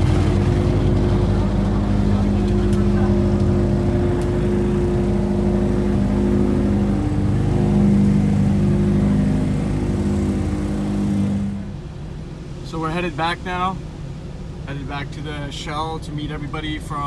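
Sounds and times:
car engine running: 0.0 - 17.0.

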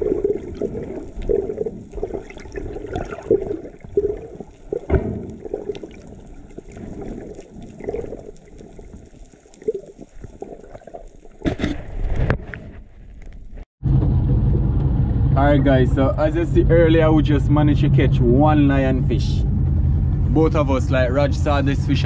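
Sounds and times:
water splash: 0.0 - 12.5
muffled underwater water sloshing: 0.0 - 13.3.

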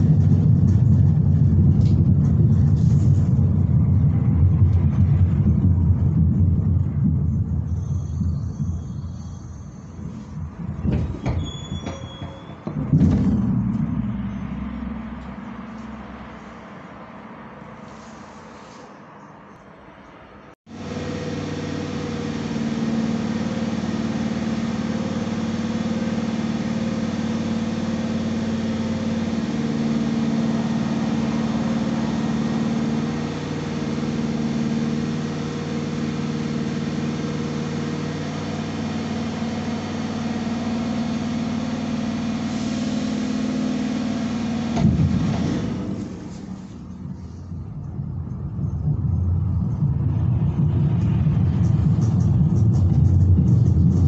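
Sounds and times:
electric train humming: 13.3 - 17.8, 20.7 - 45.2.

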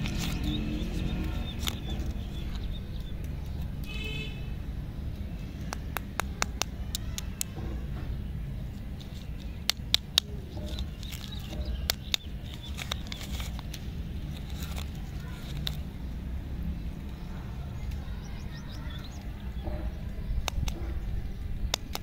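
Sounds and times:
candy wrappers crinkling: 8.8 - 16.0.

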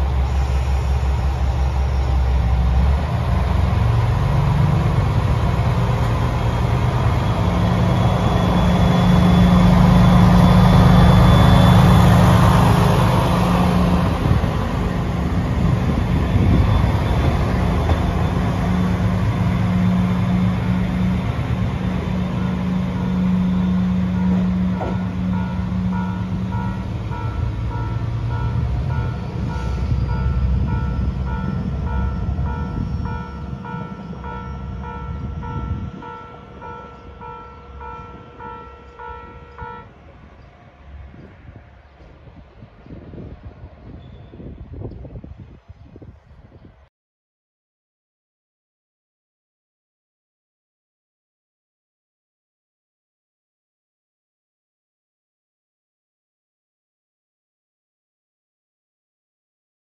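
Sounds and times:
diesel railcar engine revving: 0.0 - 44.5.

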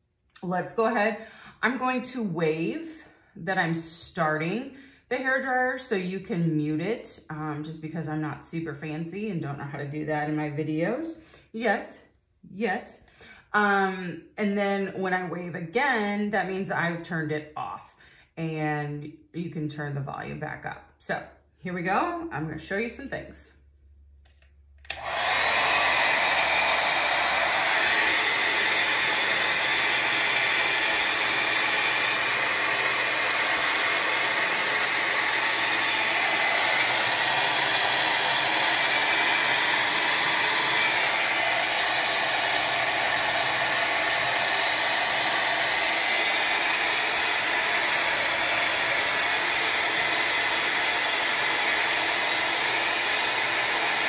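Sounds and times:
hair dryer blowing: 0.0 - 11.8, 24.8 - 54.0.

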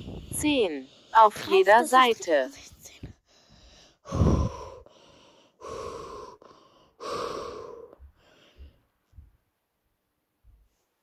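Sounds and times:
person breathing hard: 3.1 - 9.0
faint low bumps: 7.8 - 9.5.

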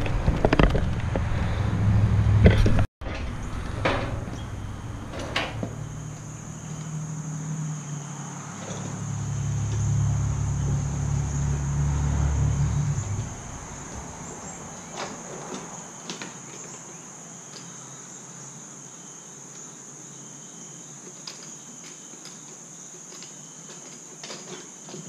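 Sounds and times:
low engine rumble: 0.0 - 15.8
high insect drone: 3.2 - 25.0.

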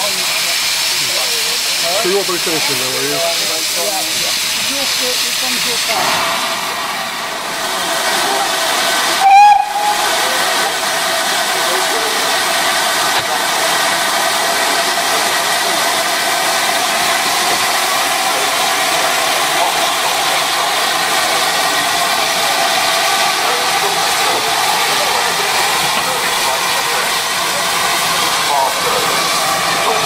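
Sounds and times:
steam hissing: 0.0 - 30.0
loud steam whistle toot: 9.2 - 10.2.

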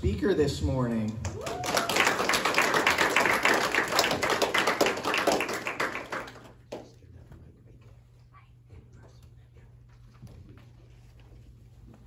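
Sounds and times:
people clapping: 1.0 - 7.1.

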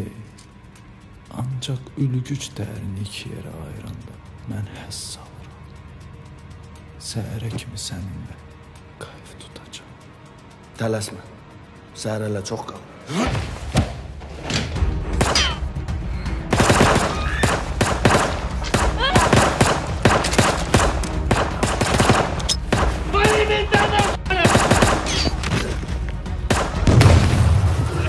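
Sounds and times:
rapid pistol shots: 16.5 - 25.4, 26.5 - 27.1
voices: 18.8 - 19.6, 23.0 - 24.6.

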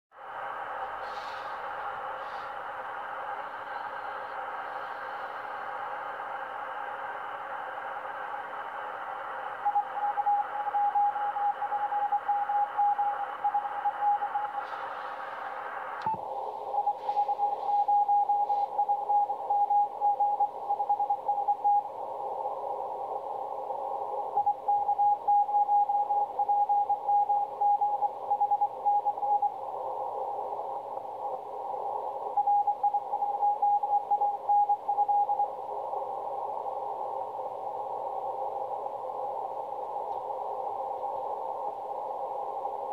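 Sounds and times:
radio band hiss: 0.2 - 25.3, 26.0 - 42.9
radio click: 36.4 - 42.7.

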